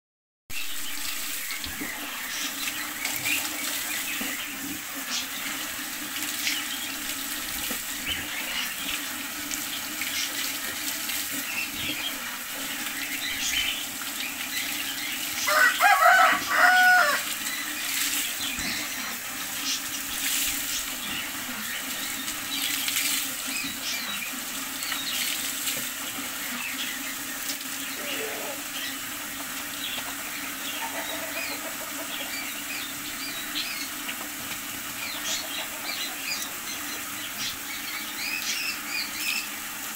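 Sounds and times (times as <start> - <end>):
hose water splashing on dog: 0.5 - 39.9
loud pitched call: 15.4 - 17.4.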